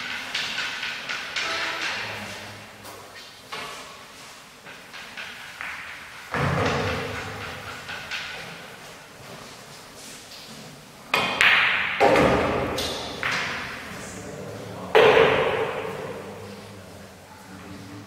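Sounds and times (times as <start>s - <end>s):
pool balls clacking: 0.0s - 9.5s, 11.1s - 13.9s, 14.8s - 16.4s
cue striking ball: 11.2s - 13.8s, 14.9s - 16.2s.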